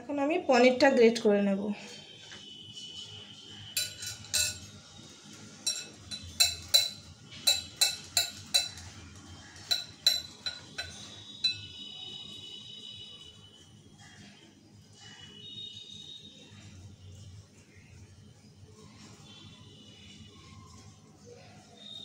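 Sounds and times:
grater clinking against glass: 0:03.8 - 0:04.7, 0:05.6 - 0:11.7.

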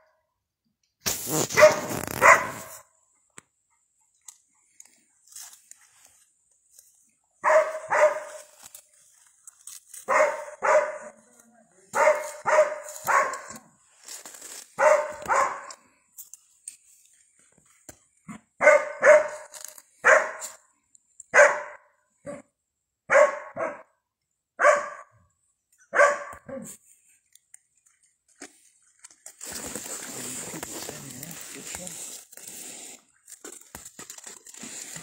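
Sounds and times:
dog barking loudly: 0:01.5 - 0:02.8, 0:07.4 - 0:08.5, 0:10.1 - 0:11.2, 0:11.9 - 0:13.6, 0:14.8 - 0:15.8, 0:18.6 - 0:20.6, 0:21.3 - 0:22.5, 0:23.1 - 0:23.9, 0:24.6 - 0:25.1, 0:25.9 - 0:26.7.

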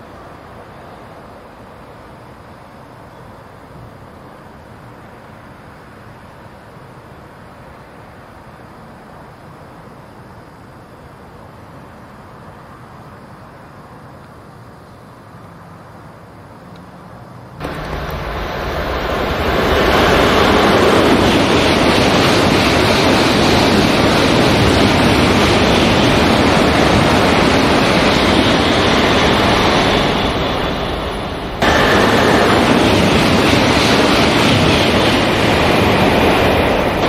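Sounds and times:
high-speed train passing: 0:00.0 - 0:37.0.

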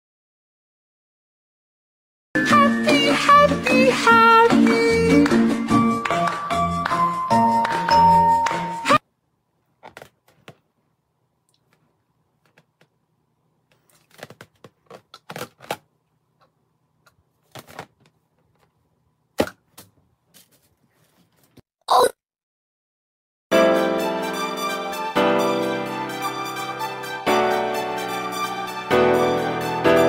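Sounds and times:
background music: 0:02.4 - 0:09.0, 0:23.5 - 0:30.0.

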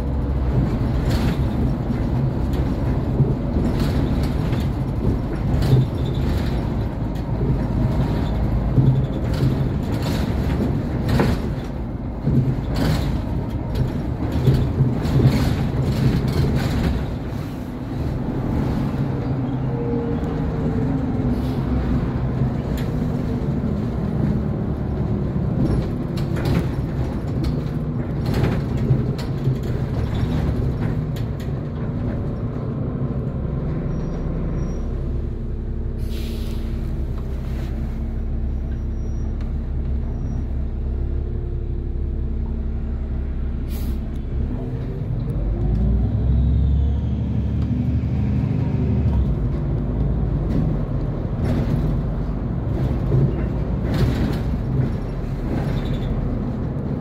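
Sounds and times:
bus engine and road noise: 0:00.0 - 0:57.0
air brakes hissing: 0:21.3 - 0:21.8, 0:36.0 - 0:38.1, 0:43.6 - 0:44.1.

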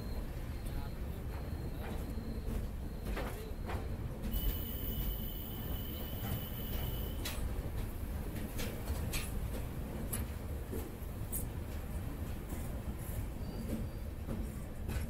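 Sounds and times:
train rumbling: 0:00.0 - 0:15.0
thin high whine: 0:04.3 - 0:07.3.

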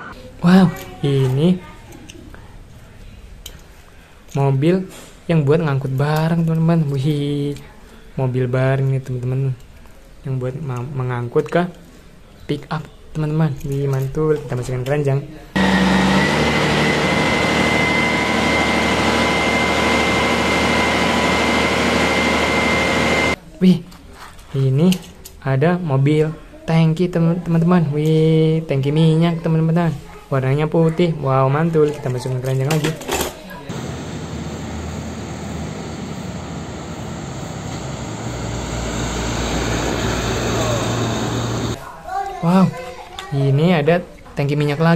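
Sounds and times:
forklift diesel engine running: 0:15.6 - 0:23.4, 0:33.7 - 0:41.8
high whine: 0:15.6 - 0:23.4, 0:33.7 - 0:41.8
truck driving past: 0:15.6 - 0:23.4, 0:33.7 - 0:41.8
traffic: 0:33.7 - 0:41.8.

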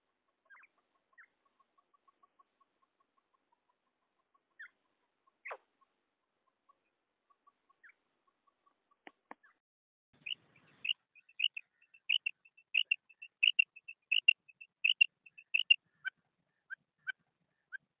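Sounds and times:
quail calling: 0:10.2 - 0:16.1.

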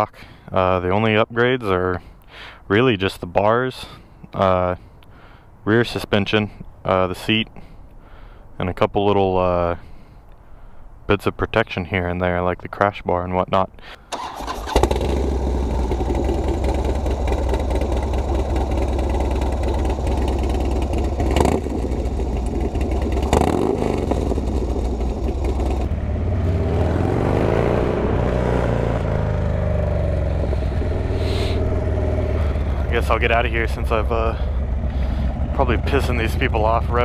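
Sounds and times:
motorcycle throttle blips: 0:14.1 - 0:37.0
motorcycle engine running: 0:14.4 - 0:37.0.

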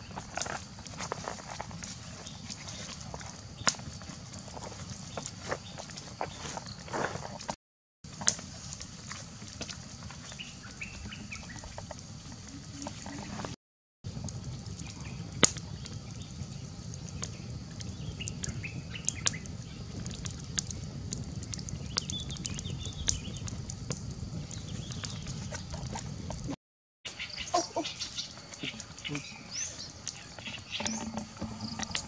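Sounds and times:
wood fire crackling: 0:00.0 - 0:26.6, 0:27.2 - 0:32.0
birds calling: 0:10.2 - 0:13.6, 0:27.1 - 0:32.0.

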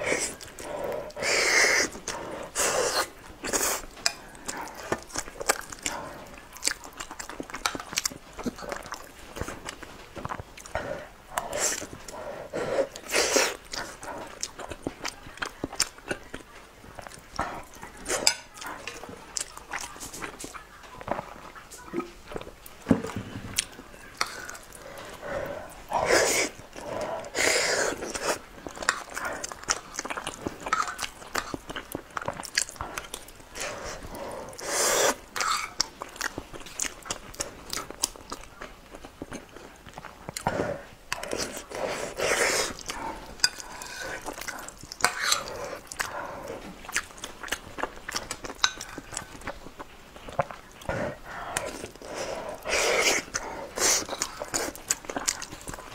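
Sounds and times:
close chewing and mouth sounds: 0:00.0 - 0:55.9.

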